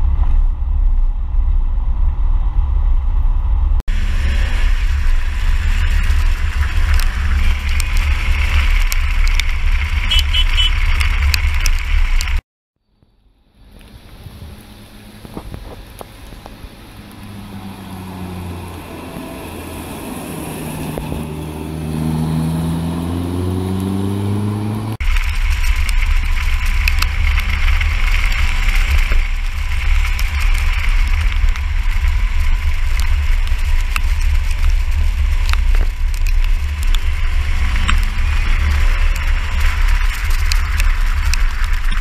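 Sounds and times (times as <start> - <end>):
wind and road roar: 0.0 - 42.0
tyre hiss on wet road: 3.9 - 12.2
car engine approaching: 13.1 - 42.0.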